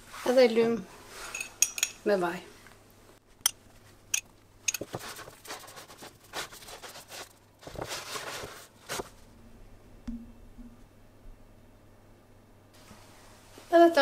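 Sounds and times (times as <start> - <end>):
metal spoon clinking: 1.3 - 2.0
hands rubbing dough in metal tray: 4.8 - 9.1.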